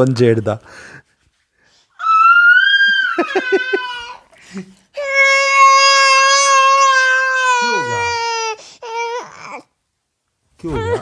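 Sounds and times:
infant crying: 0:02.0 - 0:04.3, 0:05.0 - 0:09.7, 0:10.7 - 0:11.0.

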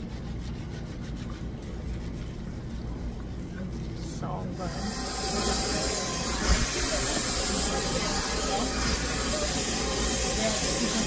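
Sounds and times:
hair dryer blowing: 0:04.6 - 0:11.0.

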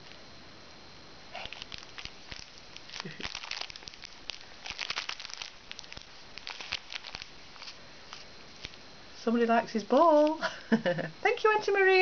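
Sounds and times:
plastic packaging crinkling: 0:01.3 - 0:08.8.

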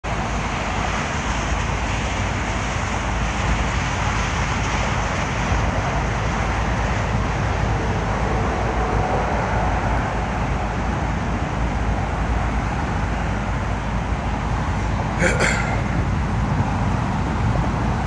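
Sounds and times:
road traffic rumble: 0:00.1 - 0:18.0.

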